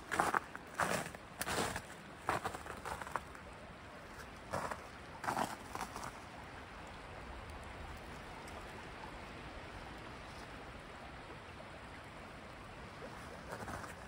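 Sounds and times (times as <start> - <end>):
brook babbling over rocks: 0.0 - 14.0.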